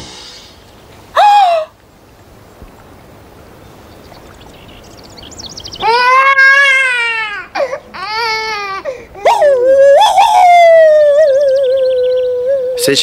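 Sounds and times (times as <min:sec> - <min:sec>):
high wailing cry: 0:01.2 - 0:01.8, 0:05.8 - 0:13.0.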